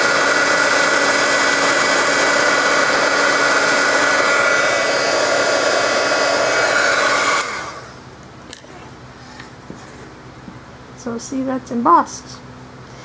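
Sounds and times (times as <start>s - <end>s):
heat gun whirring: 0.0s - 8.1s.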